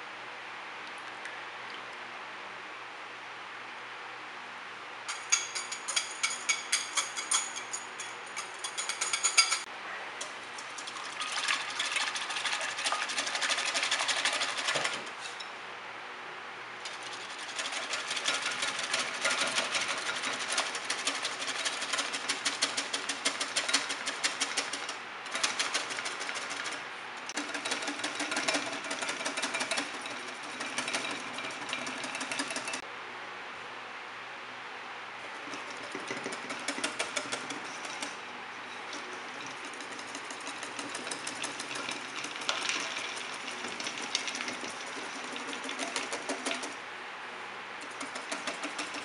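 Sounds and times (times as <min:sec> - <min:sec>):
whisk clicking against bowl: 0:05.1 - 0:09.7, 0:10.6 - 0:15.4, 0:16.9 - 0:32.8, 0:35.3 - 0:46.8, 0:47.8 - 0:49.0.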